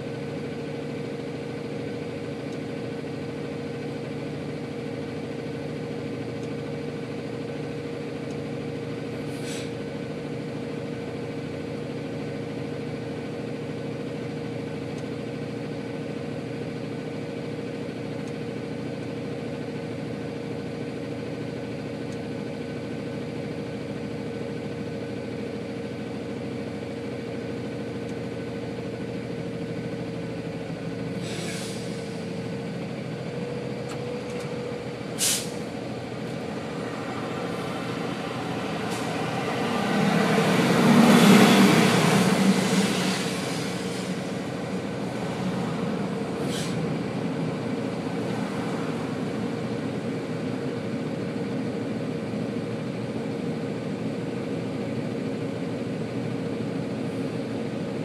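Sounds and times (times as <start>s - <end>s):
diesel engine idling: 0.0s - 58.0s
short hisses: 9.3s - 9.8s, 31.2s - 32.3s, 35.2s - 35.7s, 46.4s - 46.8s.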